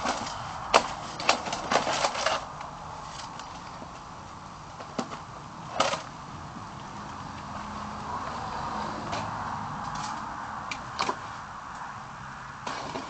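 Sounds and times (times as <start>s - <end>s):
packaging rustling and scraping: 0.0s - 3.6s.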